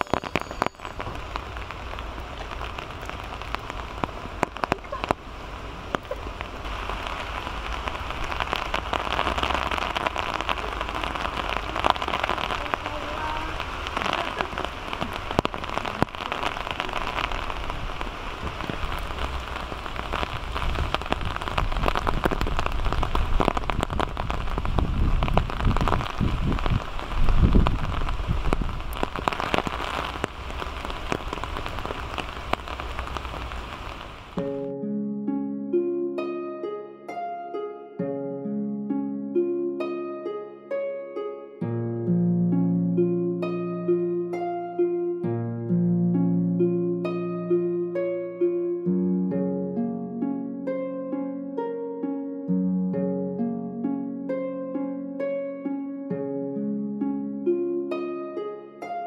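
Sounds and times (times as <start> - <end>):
heavy rain: 0.0 - 34.6
raindrop hits: 0.0 - 34.6.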